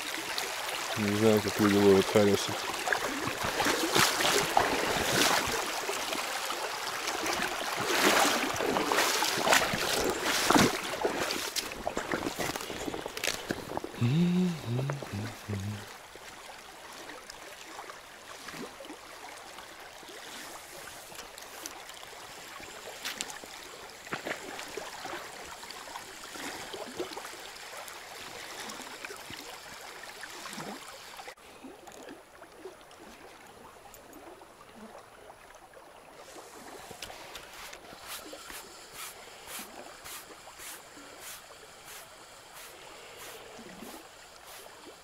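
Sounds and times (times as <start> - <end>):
river water rushing: 0.0 - 16.3.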